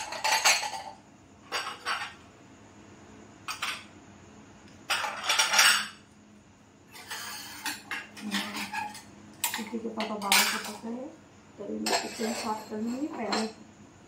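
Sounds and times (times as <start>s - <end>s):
steel utensils clinking and clattering: 0.0s - 2.2s, 4.9s - 6.0s, 6.9s - 10.8s, 11.8s - 13.6s.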